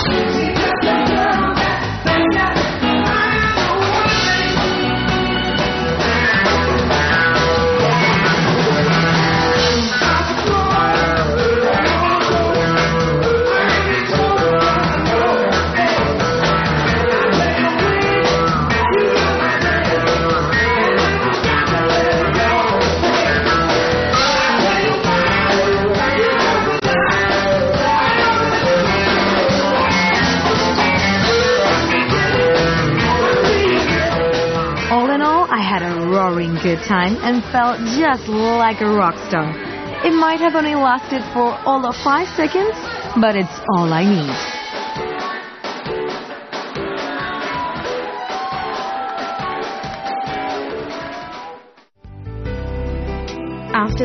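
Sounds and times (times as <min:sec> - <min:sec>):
people singing: 0:00.0 - 0:35.4, 0:39.3 - 0:45.8, 0:46.8 - 0:49.8
electric guitar: 0:00.0 - 0:40.1
drums: 0:00.0 - 0:54.0.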